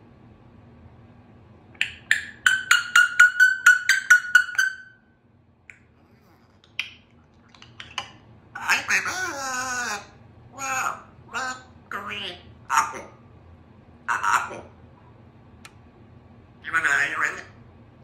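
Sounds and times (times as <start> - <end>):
parrot clicks: 1.8 - 4.7, 6.6 - 8.2.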